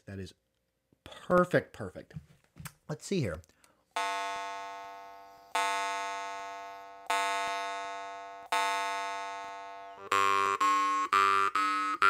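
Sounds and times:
jaw harp plucked: 0:08.5 - 0:12.0.

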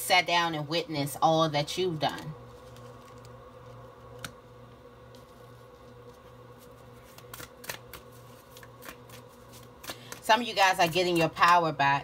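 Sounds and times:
faint electrical hum: 0:00.0 - 0:12.0
cards slapping and rustling: 0:02.1 - 0:04.4, 0:05.1 - 0:11.6.

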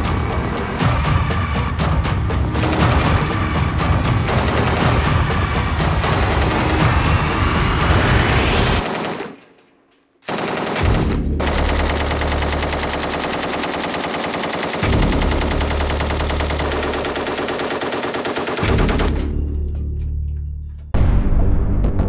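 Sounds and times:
machine gun automatic fire: 0:02.6 - 0:03.6, 0:04.2 - 0:09.4, 0:10.2 - 0:19.4.

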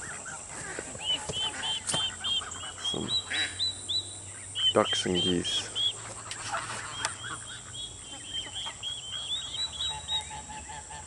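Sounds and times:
geese and ducks peeping: 0:00.0 - 0:11.0
lower short bird calls: 0:00.0 - 0:11.0.

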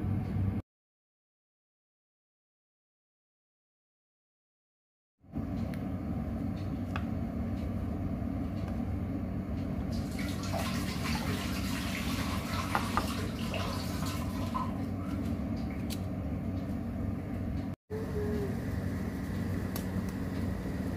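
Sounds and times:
steady low hum: 0:05.3 - 0:11.3, 0:13.2 - 0:20.9
water running: 0:09.9 - 0:15.9.

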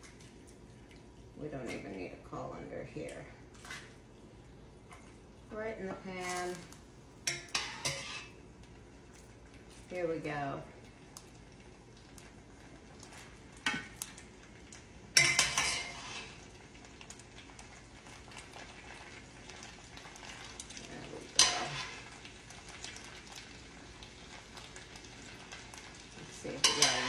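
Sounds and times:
sauce sizzling: 0:03.8 - 0:27.0
metal tongs clanking against pan: 0:07.2 - 0:08.3, 0:15.2 - 0:16.3, 0:21.3 - 0:22.0, 0:26.5 - 0:27.0.

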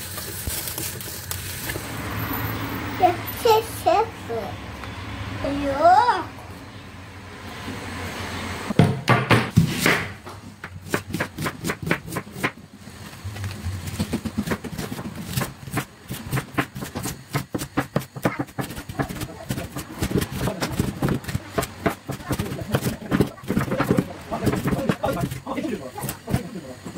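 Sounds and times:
knife chopping on wooden board: 0:08.8 - 0:12.6, 0:13.9 - 0:25.4.

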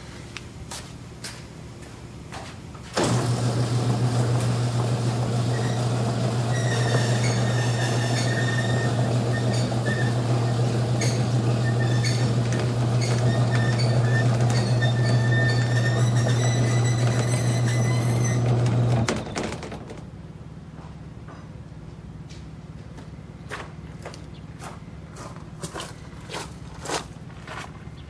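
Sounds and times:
garage door opener motor humming: 0:02.9 - 0:20.1
garage door rattling: 0:03.0 - 0:20.1
squeaks and clicks: 0:06.5 - 0:19.6.

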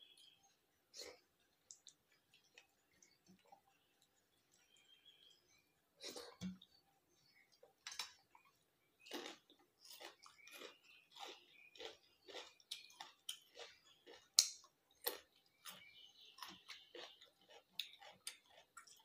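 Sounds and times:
person chewing food: 0:00.1 - 0:05.4, 0:06.0 - 0:19.0.

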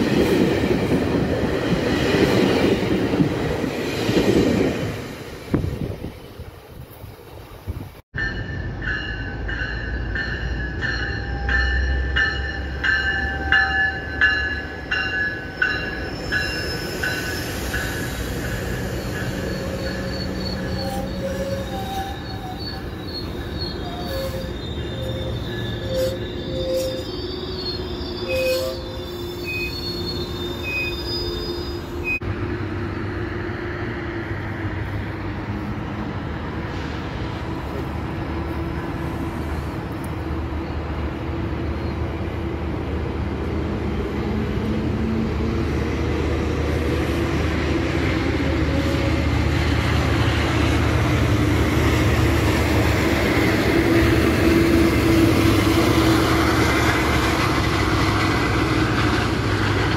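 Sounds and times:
train rolling on rails: 0:00.0 - 0:59.9
wheel squeal: 0:15.6 - 0:18.0, 0:18.7 - 0:32.2.

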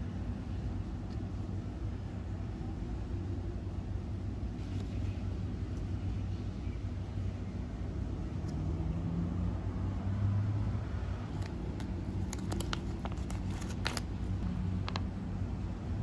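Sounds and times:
steady low hum: 0:00.0 - 0:16.0
foil pouch crinkling and ripping: 0:11.3 - 0:15.0.

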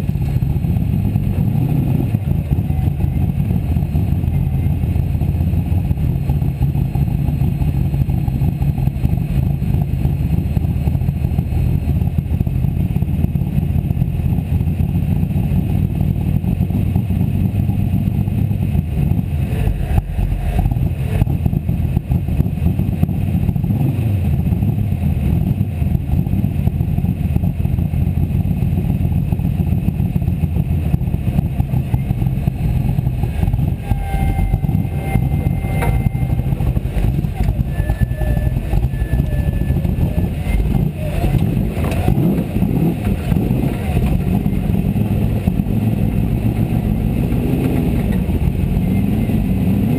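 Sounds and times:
car engine idling: 0:00.0 - 0:49.9.

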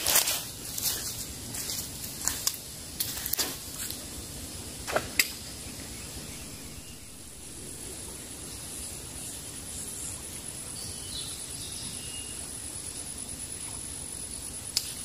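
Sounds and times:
footsteps crunching on dry leaves: 0:00.0 - 0:04.0
high insect tone: 0:00.0 - 0:15.0.

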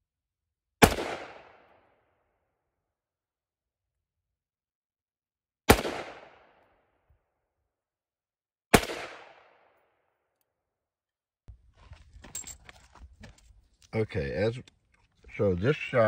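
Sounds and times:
rifle shots: 0:00.8 - 0:01.7, 0:05.7 - 0:06.5, 0:08.7 - 0:09.7.

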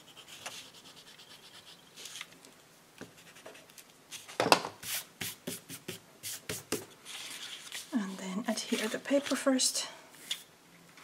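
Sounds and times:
eraser rubbing on paper: 0:00.0 - 0:02.1, 0:03.2 - 0:09.0.

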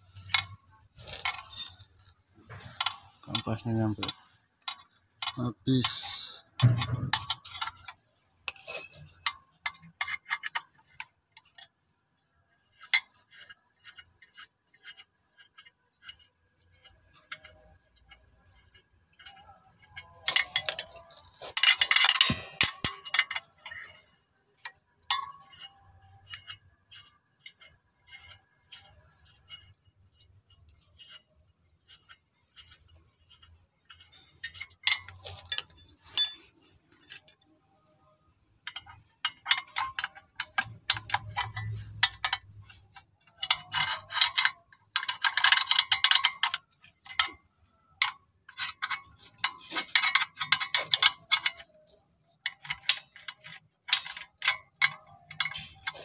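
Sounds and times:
metal clinking and clattering: 0:00.0 - 0:11.7, 0:14.8 - 0:29.7, 0:33.4 - 0:37.5, 0:38.6 - 0:47.4, 0:48.0 - 0:56.0
ratcheting wrench clicking: 0:04.6 - 0:07.9, 0:18.6 - 0:24.0.

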